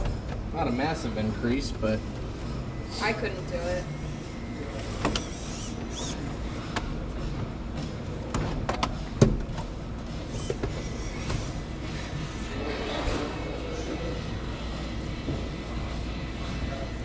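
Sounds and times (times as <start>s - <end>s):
rc trucks whirring: 4.8s - 6.2s, 10.3s - 11.2s.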